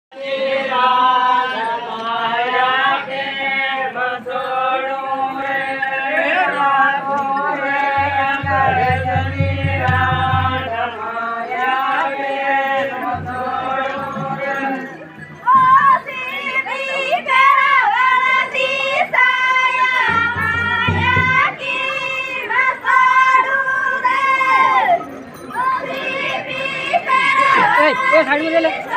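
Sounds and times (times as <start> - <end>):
high-pitched folk singing: 0.1 - 28.9
deep low beats: 8.0 - 10.8.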